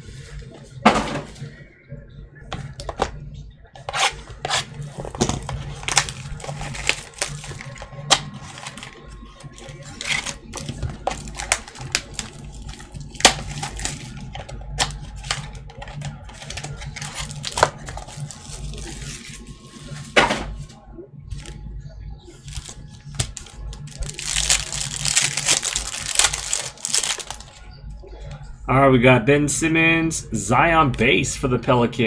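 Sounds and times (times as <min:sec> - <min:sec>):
wrapper crinkling: 0:04.6 - 0:19.9, 0:22.4 - 0:27.6.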